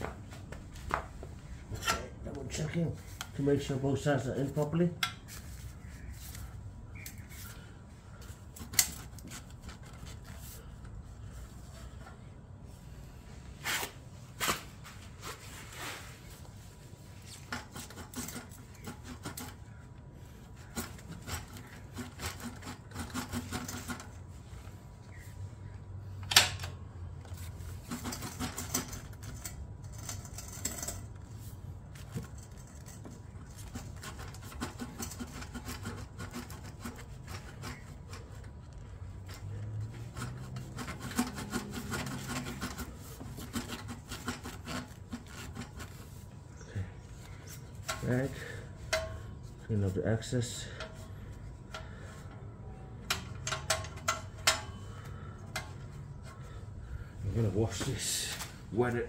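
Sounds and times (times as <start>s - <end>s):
rag scrubbing metal pipe: 17.1s - 24.6s, 27.6s - 31.5s, 32.2s - 52.4s.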